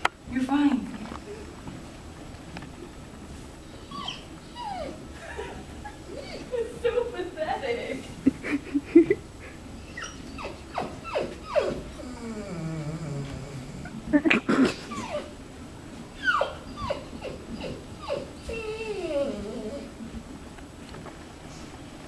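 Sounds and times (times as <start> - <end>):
dog whining and whimpering: 3.6 - 6.6, 9.8 - 14.0, 14.6 - 15.4, 16.1 - 20.0.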